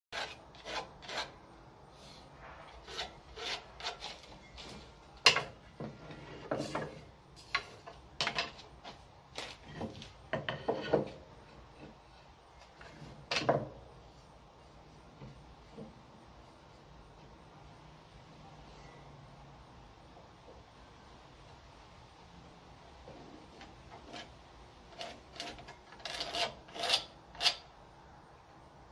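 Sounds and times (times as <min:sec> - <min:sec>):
wood sliding against wood: 0:02.4 - 0:12.0.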